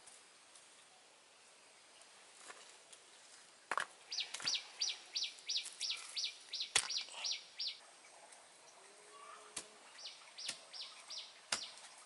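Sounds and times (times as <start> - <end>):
stones being handled: 3.7 - 4.5, 5.6 - 7.2.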